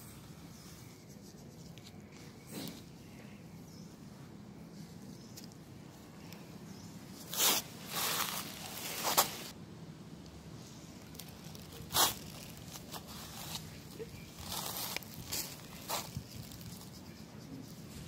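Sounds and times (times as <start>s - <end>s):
gloved hands rubbing fur: 0.5s - 2.4s, 11.9s - 18.0s.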